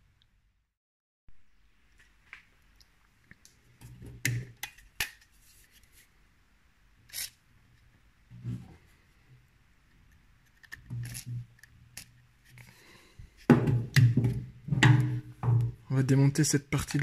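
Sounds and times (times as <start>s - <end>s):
dull handling knock: 13.5s - 15.8s.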